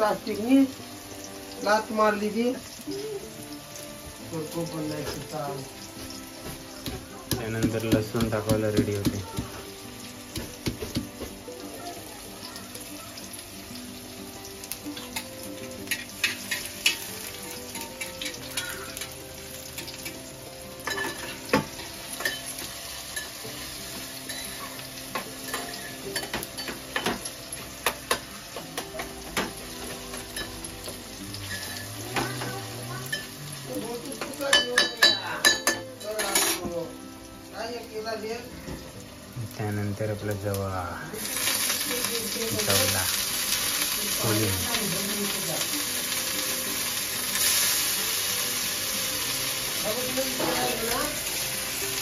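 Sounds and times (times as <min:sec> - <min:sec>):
vegetables sizzling in oil: 0:00.0 - 0:52.0
spoon scraping metal pan: 0:31.4 - 0:32.0.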